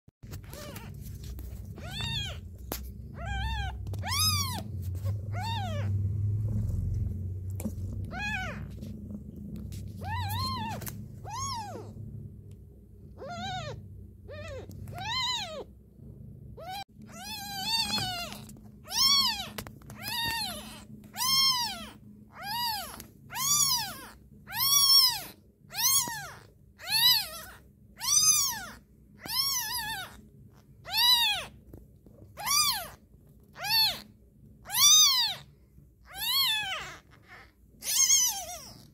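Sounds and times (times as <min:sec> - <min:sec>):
low rumble: 0:00.2 - 0:24.5
kitten mewing: 0:00.3 - 0:06.0, 0:07.7 - 0:08.8, 0:10.0 - 0:12.0, 0:13.1 - 0:15.7.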